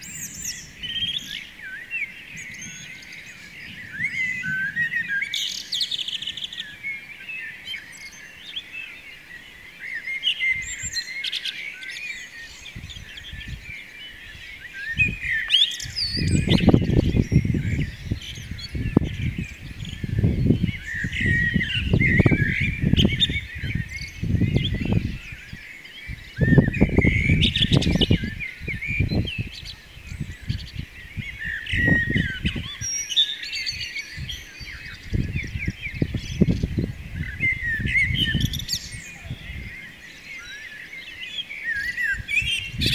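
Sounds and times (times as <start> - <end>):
songbirds chirping and trilling: 0.0 - 42.9.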